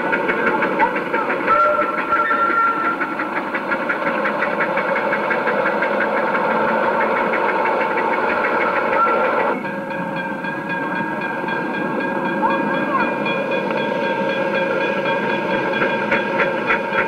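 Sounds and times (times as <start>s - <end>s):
steam locomotive chuffing: 0.0s - 17.0s
whistle-like tone: 1.5s - 3.0s, 8.8s - 9.5s.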